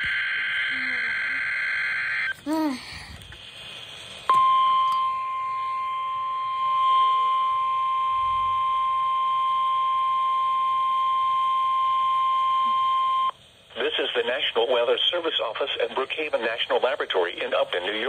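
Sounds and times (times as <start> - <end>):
steady high alarm tone: 0.0 - 2.4, 4.3 - 13.3.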